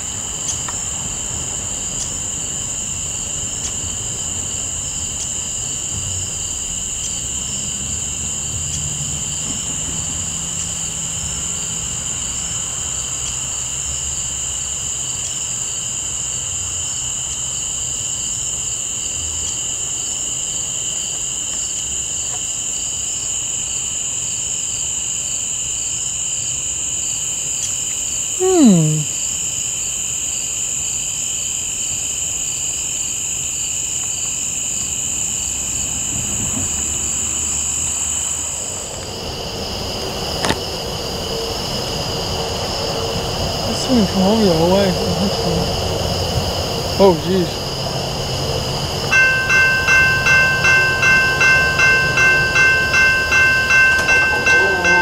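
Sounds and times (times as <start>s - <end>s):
faint diesel engine drone: 0.0s - 15.0s, 34.6s - 55.0s
crickets chirping: 0.0s - 55.0s.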